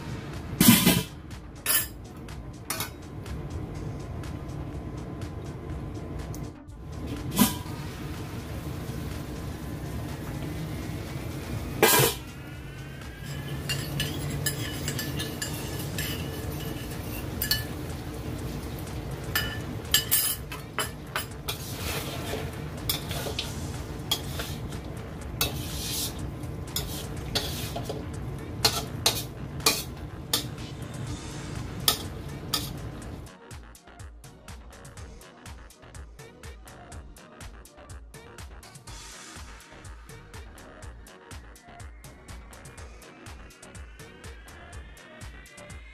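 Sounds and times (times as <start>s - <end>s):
metal spatula scraping wok: 7.1s - 9.6s, 10.3s - 33.2s.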